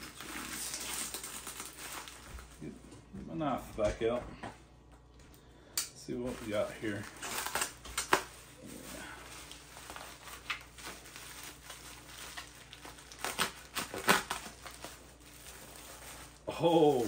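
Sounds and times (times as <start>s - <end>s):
bubble wrap crinkling: 0.0s - 2.8s, 6.1s - 17.0s
knife slicing bubble wrap: 12.3s - 15.0s.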